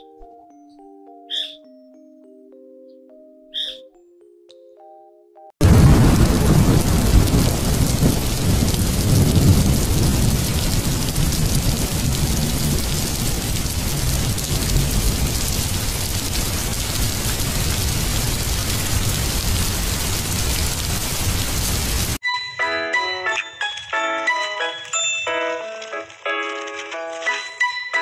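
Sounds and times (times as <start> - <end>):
steady rain: 5.6 - 22.2, 23.4 - 28.0
thunder rumble: 5.6 - 22.2.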